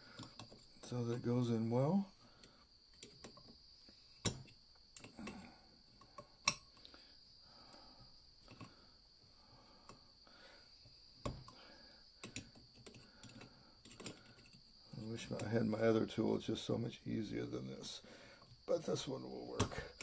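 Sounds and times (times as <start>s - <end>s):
faint high whine: 0.0s - 20.0s.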